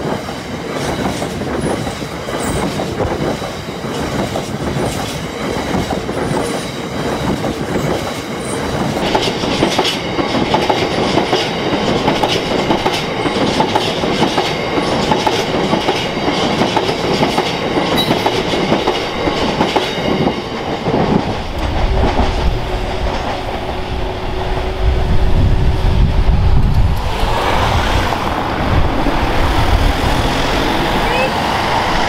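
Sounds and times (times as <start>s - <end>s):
train wheels clattering over rail joints: 0.0s - 24.7s.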